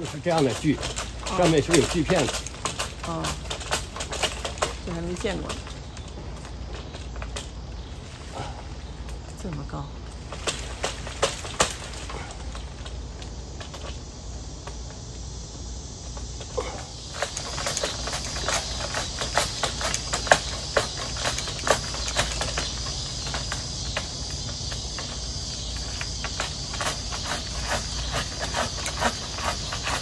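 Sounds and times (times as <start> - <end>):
pruning saw rasping through branch: 0.0 - 5.8, 16.6 - 24.2, 25.7 - 30.0
high insect trill: 0.0 - 30.0.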